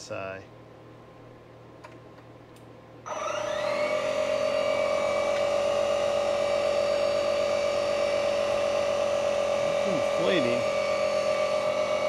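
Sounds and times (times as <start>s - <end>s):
electric tire inflator running: 3.1s - 12.0s.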